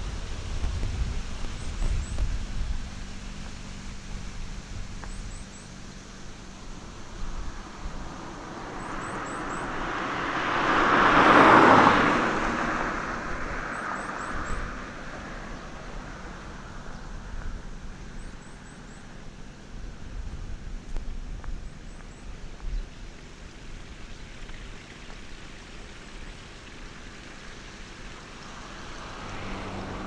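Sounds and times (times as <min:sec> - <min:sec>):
car passing by: 0:06.2 - 0:18.6, 0:25.1 - 0:30.0.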